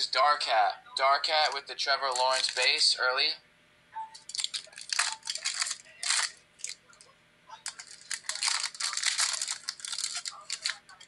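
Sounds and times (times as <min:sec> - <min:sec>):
cards rustling: 0:01.4 - 0:02.9, 0:04.2 - 0:11.0
card pack wrapper tearing: 0:02.1 - 0:02.8, 0:04.3 - 0:06.8, 0:07.6 - 0:11.0.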